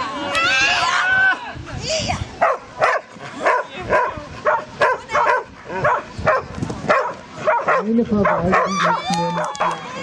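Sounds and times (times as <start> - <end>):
dog barking: 2.4 - 8.8.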